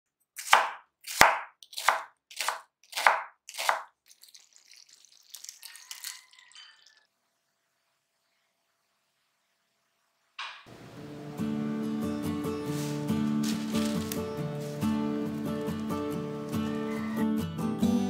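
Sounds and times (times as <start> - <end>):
knife chopping on cutting board: 0.4 - 3.8
hissing kitchen noise: 4.1 - 16.8.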